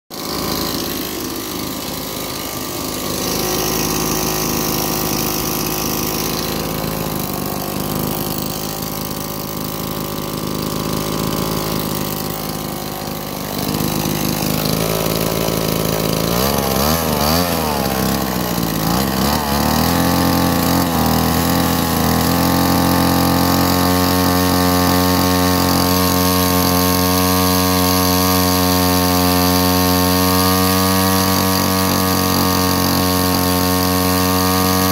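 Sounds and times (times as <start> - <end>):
string trimmer engine revving: 0.1 - 34.9.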